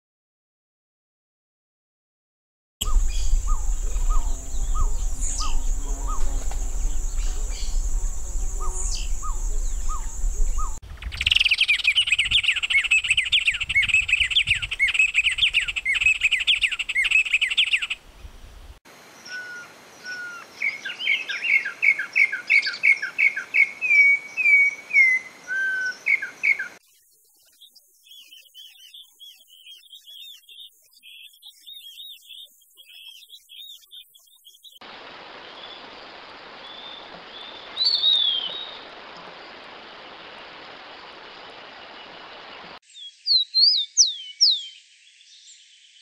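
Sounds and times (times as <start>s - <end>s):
dove low notes: 2.8s - 10.8s
low rumble: 2.8s - 10.8s
bird fast chattering song: 2.8s - 18.0s.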